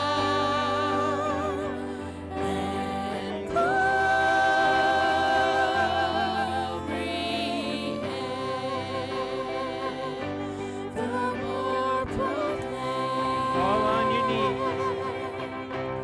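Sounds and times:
sustained accompaniment: 0:00.0 - 0:16.0
worship singing: 0:00.0 - 0:16.0.

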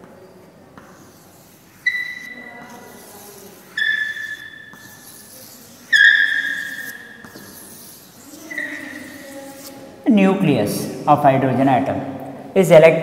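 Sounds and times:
chalk scratching: 0:00.8 - 0:10.0
chalk squealing on blackboard: 0:00.8 - 0:10.0.

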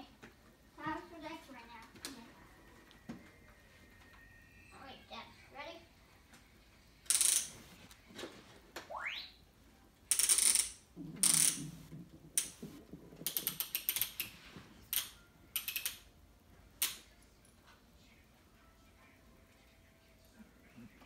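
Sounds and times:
plastic toy clicking and rattling: 0:10.1 - 0:16.1.

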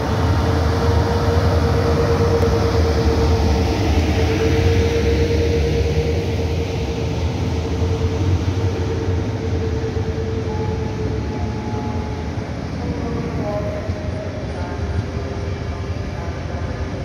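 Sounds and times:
steady tone: 0:00.0 - 0:14.6.

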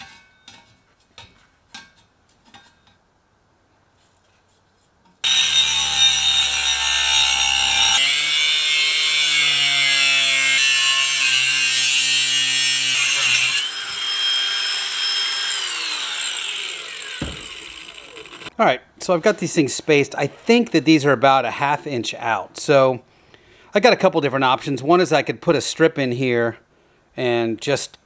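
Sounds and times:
angle grinder cutting steel: 0:05.2 - 0:18.6.

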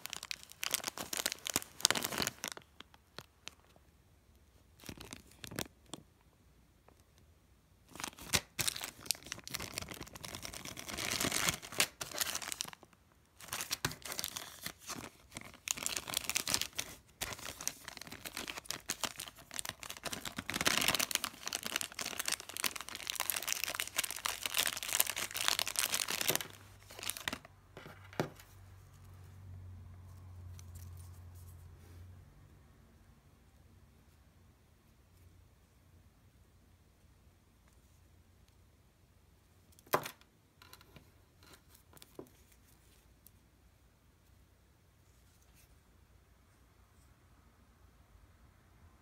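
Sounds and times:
plastic bag crinkling and tearing: 0:00.0 - 0:03.8, 0:04.8 - 0:06.0, 0:07.9 - 0:27.5.

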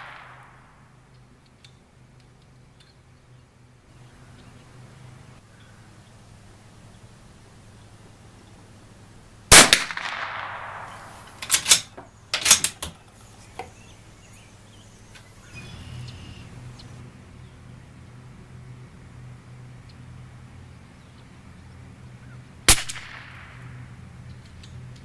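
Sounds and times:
rifle shot with echo: 0:00.0 - 0:01.0, 0:09.5 - 0:12.6, 0:22.7 - 0:23.9
rifle bolt metallic clicks: 0:11.2 - 0:13.0.

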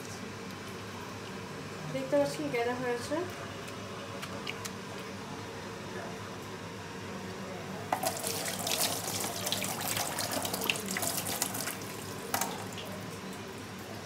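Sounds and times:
tap water splashing into sink: 0:08.0 - 0:13.0.

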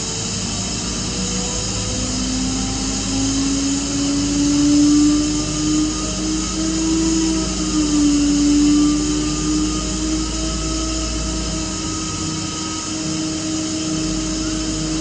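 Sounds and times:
air compressor drone and whine: 0:00.0 - 0:15.0.

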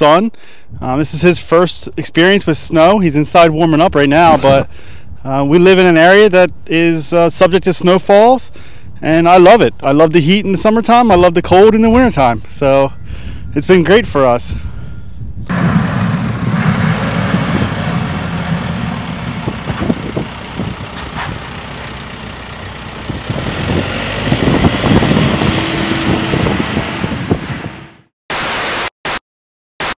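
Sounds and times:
diesel engine of loader running: 0:15.5 - 0:28.1
plow blade pushing snow: 0:15.5 - 0:28.1
bursts of static: 0:28.3 - 0:29.2.

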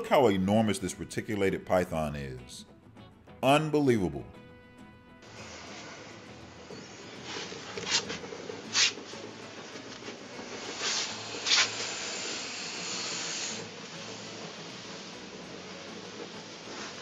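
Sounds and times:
snake hissing: 0:05.2 - 0:09.3, 0:10.1 - 0:17.0.

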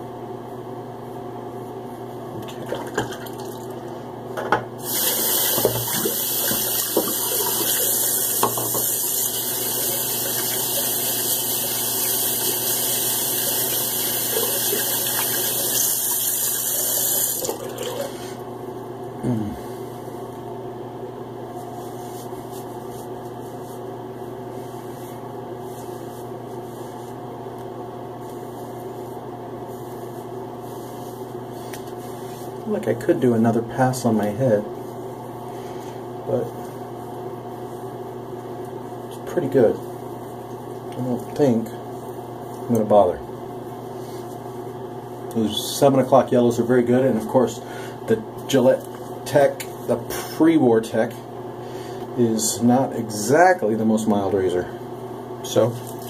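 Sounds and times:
tap running into a sink: 0:05.5 - 0:07.6
steady low hum: 0:16.5 - 0:56.0.

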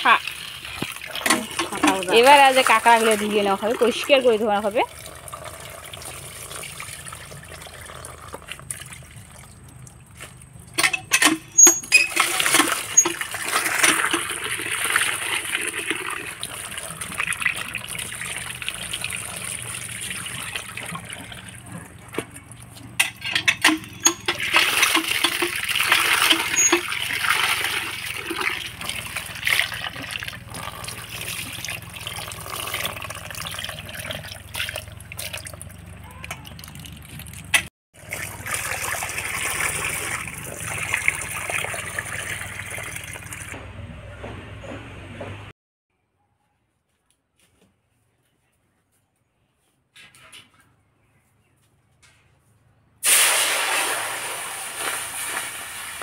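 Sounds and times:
water splashing into steel bowl: 0:00.0 - 0:10.0, 0:11.1 - 0:21.7, 0:22.4 - 0:43.6, 0:53.0 - 0:56.0.

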